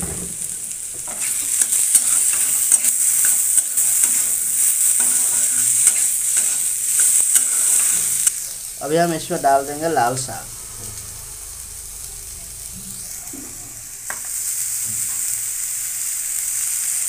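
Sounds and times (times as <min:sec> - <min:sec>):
vegetables sizzling in oil: 0:00.0 - 0:17.0
steel spatula scraping pan: 0:00.4 - 0:08.6.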